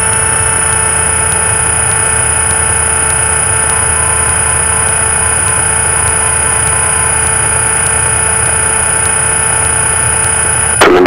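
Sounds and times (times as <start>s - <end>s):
light aircraft engine drone: 0.0s - 11.0s
thin high-pitched whine: 0.0s - 11.0s.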